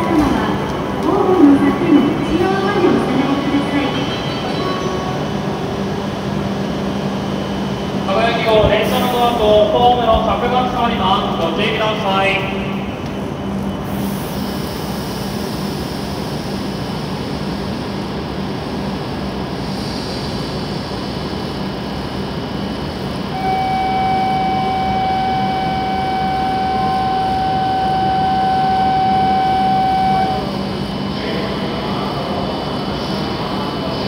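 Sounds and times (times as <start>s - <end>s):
train equipment whooshing hum: 0.0s - 34.0s
electronic warning tone: 23.3s - 30.6s.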